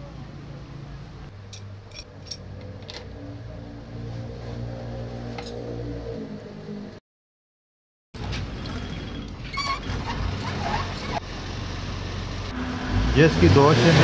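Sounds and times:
small metal parts clicking: 1.5 - 3.0.

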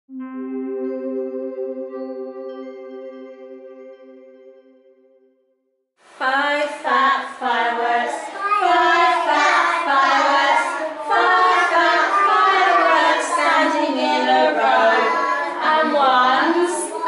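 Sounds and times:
children singing: 6.9 - 17.0.

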